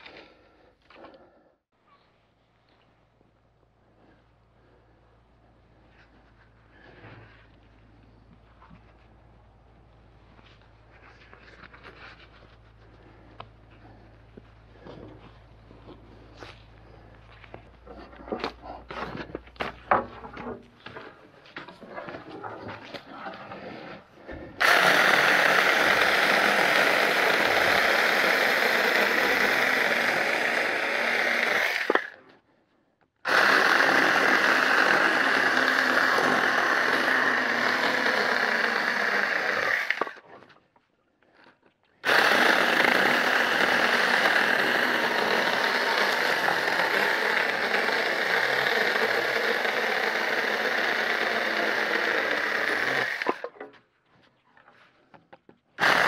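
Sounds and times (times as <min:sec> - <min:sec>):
mini chainsaw cutting wood: 0:24.6 - 0:32.3, 0:33.2 - 0:40.4, 0:42.0 - 0:53.7, 0:55.8 - 0:56.0.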